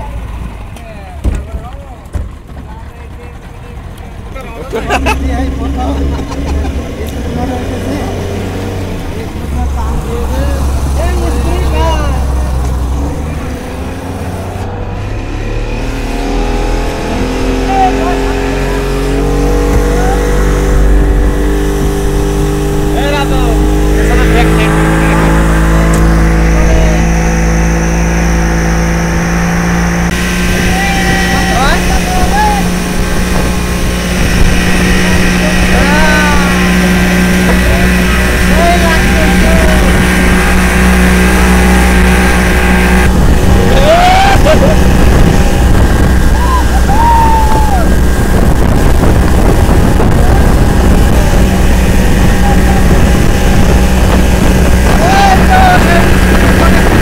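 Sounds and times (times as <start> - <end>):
boat wake rushing: 0.0 - 57.0
outboard motor drone: 0.0 - 57.0
wind on microphone: 5.8 - 57.0.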